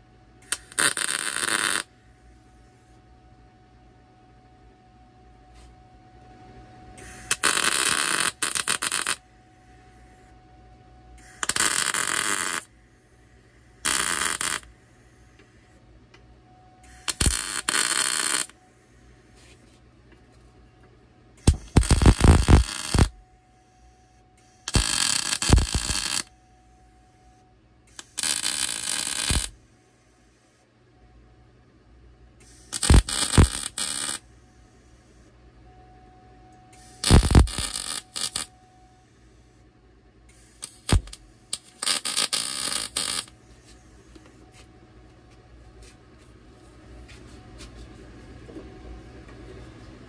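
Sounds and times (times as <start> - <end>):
welder arc crackling and hissing: 0.0 - 1.9, 7.0 - 9.2, 11.2 - 12.7, 13.8 - 15.5, 16.8 - 18.6, 21.4 - 23.2, 24.5 - 26.3, 27.9 - 29.6, 32.4 - 34.3, 36.7 - 38.5, 40.3 - 44.7
faint steady hum: 0.0 - 50.0.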